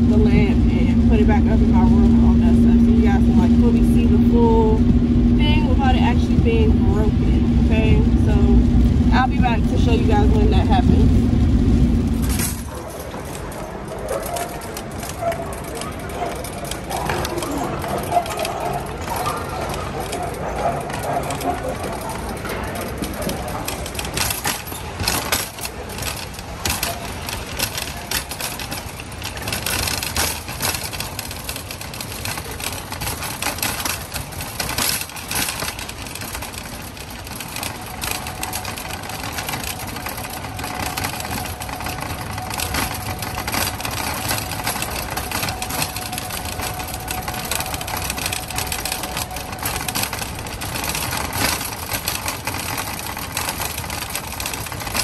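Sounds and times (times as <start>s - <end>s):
shopping cart rattling on concrete: 0.0s - 55.0s
boxes jostling in basket: 12.2s - 55.0s.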